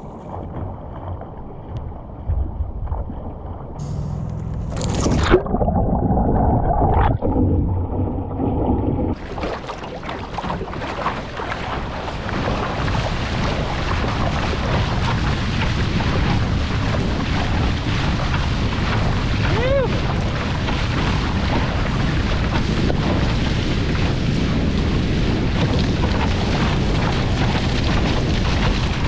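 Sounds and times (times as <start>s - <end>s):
muffled underwater gurgling: 2.2s - 29.0s
breaking surf and spray: 8.4s - 29.0s.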